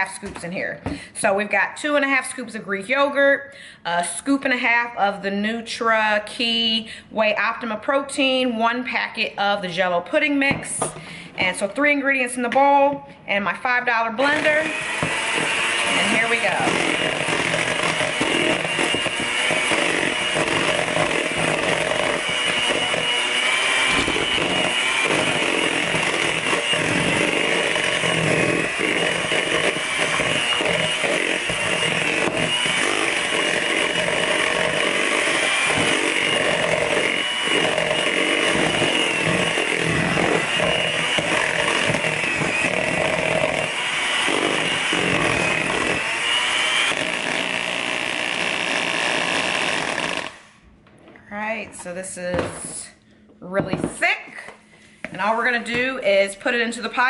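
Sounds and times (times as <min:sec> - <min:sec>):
electric hand mixer whining: 0:13.6 - 0:50.6.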